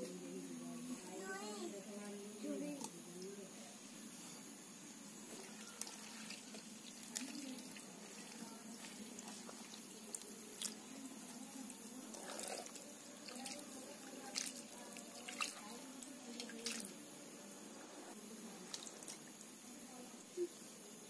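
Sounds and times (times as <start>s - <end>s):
water splashing and dripping: 5.4s - 17.0s, 18.6s - 19.5s.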